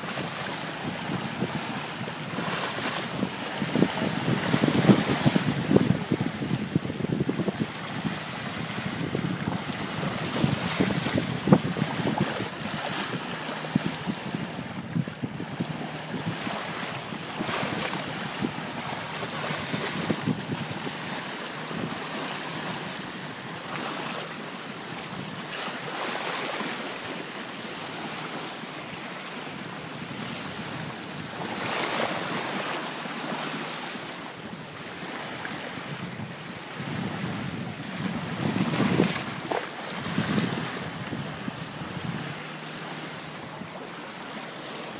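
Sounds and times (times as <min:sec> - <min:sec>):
wind buffeting microphone: 0:00.0 - 0:23.3, 0:34.7 - 0:44.1
water rushing along boat hull: 0:00.0 - 0:44.9.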